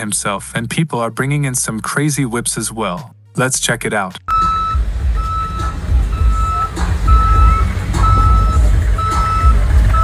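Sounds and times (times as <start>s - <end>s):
low rumble: 4.3s - 10.0s
reversing alarm beeping: 4.3s - 10.0s.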